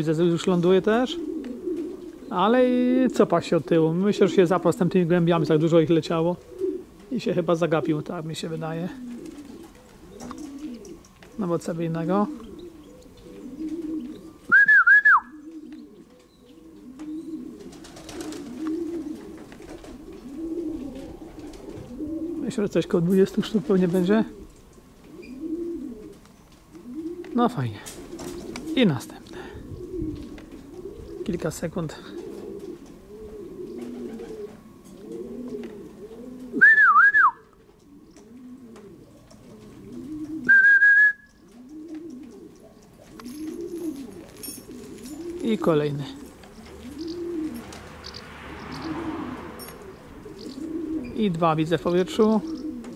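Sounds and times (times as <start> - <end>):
pigeons cooing: 0.0 - 52.9
pigeon wingbeats clattering: 9.0 - 11.4, 17.0 - 22.3, 26.0 - 28.9, 41.3 - 50.9, 51.8 - 52.9
short warbling whistle: 14.5 - 15.3, 36.6 - 37.4, 40.5 - 41.3.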